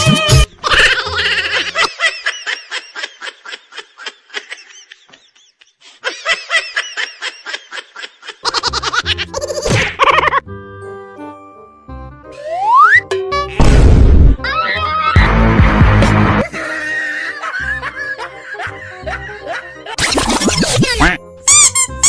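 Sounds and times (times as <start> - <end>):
high-pitched giggling: 7.5 - 10.4, 16.4 - 21.8.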